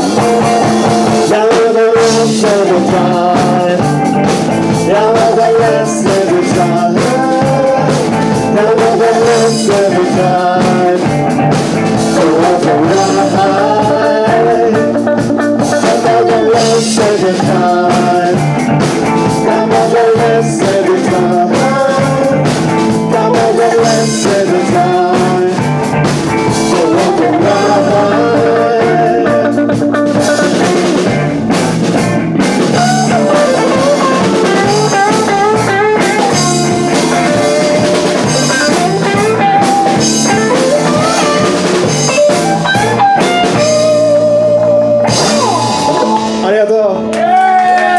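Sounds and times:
live rock band playing: 0:00.0 - 0:47.9
woman and man singing: 0:01.2 - 0:04.0, 0:04.7 - 0:11.2, 0:12.0 - 0:18.5, 0:19.2 - 0:25.7, 0:26.5 - 0:31.2, 0:32.7 - 0:39.2.

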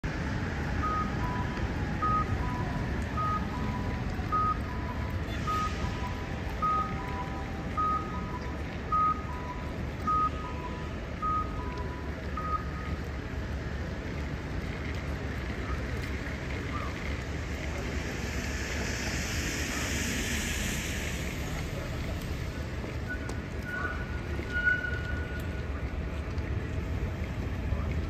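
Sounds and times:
street traffic rumble: 0:00.0 - 0:28.0
crossing signal two-note beeps: 0:00.8 - 0:12.9.

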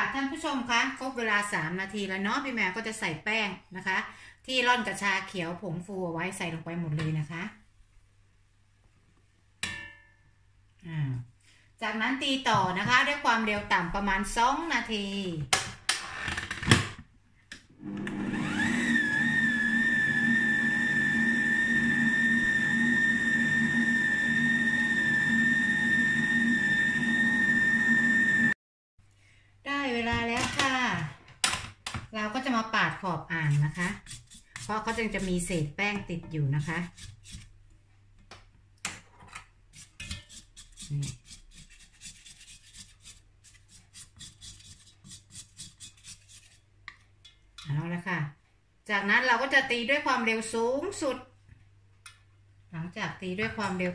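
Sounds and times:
stand mixer motor whine: 0:17.8 - 0:28.6
spatula scraping metal bowl: 0:33.4 - 0:37.6, 0:39.3 - 0:46.7.

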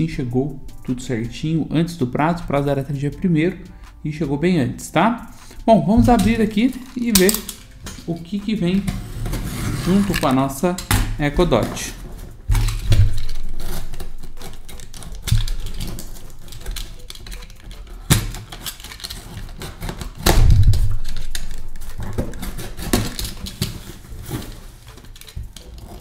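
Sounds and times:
tape and cardboard crackling: 0:05.2 - 0:26.0
knife slicing packing tape: 0:12.5 - 0:26.0.

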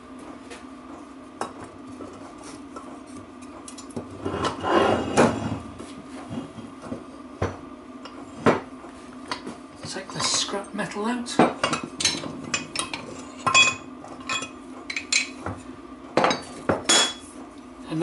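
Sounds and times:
steady hum: 0:00.0 - 0:18.0
metal scraping: 0:04.2 - 0:05.6.

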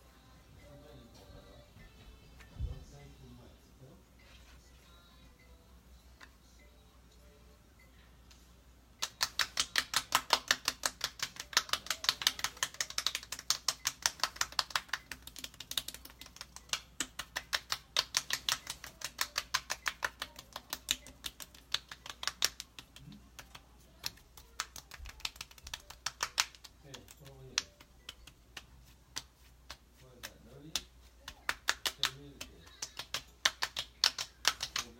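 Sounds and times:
fingertips patting skin: 0:09.0 - 0:34.9.

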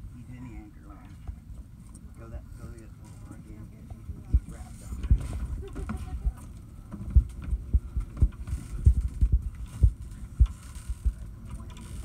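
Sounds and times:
wind buffeting microphone: 0:04.1 - 0:11.4
low thumps: 0:07.0 - 0:11.2.

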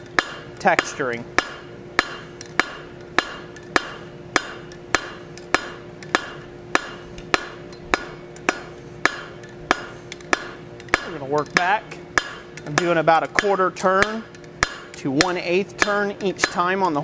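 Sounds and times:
faint steady hum: 0:00.0 - 0:17.0
hammer striking steel on anvil: 0:00.0 - 0:17.0.

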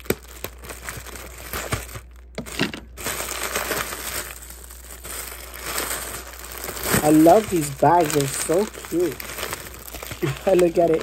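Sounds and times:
cellophane bag crinkling: 0:00.0 - 0:11.0.

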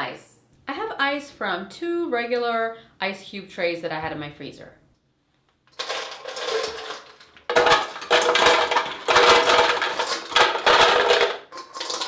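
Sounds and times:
ice cubes clattering into pitcher: 0:05.8 - 0:12.0.

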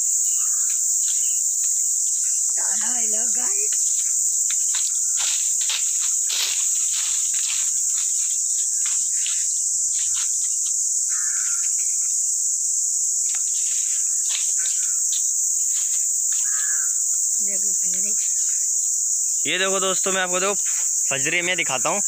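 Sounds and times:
insects droning: 0:00.0 - 0:22.0
footsteps on dry leaves: 0:00.4 - 0:17.1.

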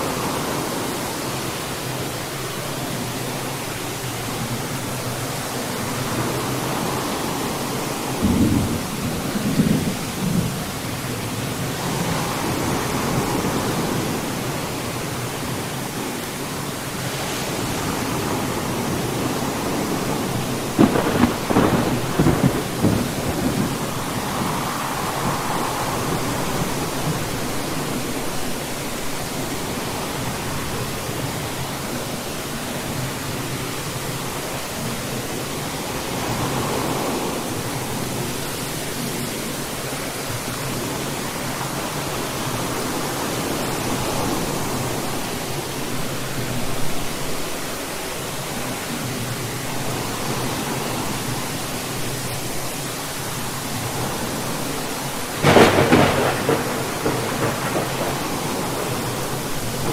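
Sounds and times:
steady rain: 0:00.0 - 0:59.9
thunder rumbling: 0:06.0 - 0:14.4, 0:17.5 - 0:29.3, 0:54.4 - 0:59.9.

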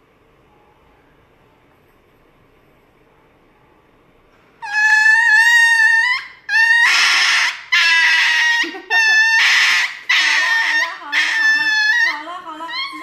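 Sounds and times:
small dog screaming: 0:04.6 - 0:13.0.

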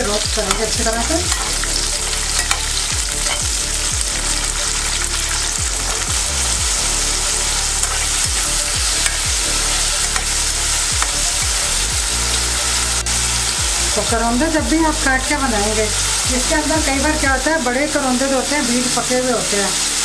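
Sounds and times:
metal spatula scraping pan: 0:00.0 - 0:13.5
berries sizzling in hot oil: 0:00.0 - 0:20.0.

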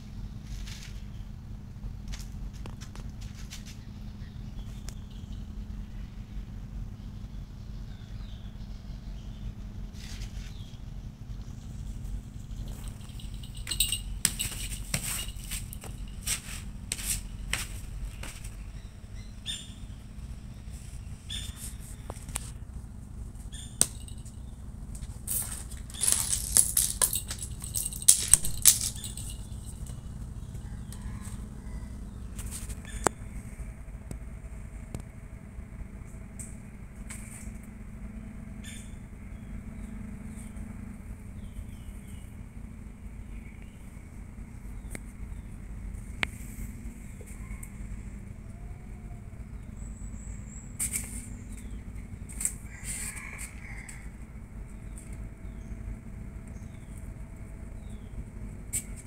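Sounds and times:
low steady hum: 0:00.0 - 0:59.0
rustling and clicking: 0:11.8 - 0:18.7, 0:23.4 - 0:31.4
crackly rustling: 0:20.6 - 0:31.5.

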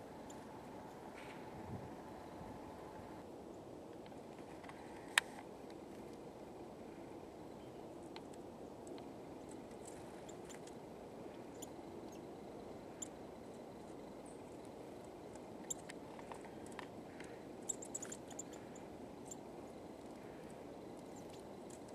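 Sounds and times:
steady low hiss: 0:00.0 - 0:21.9
bird pecking seed ticks: 0:14.6 - 0:21.9.

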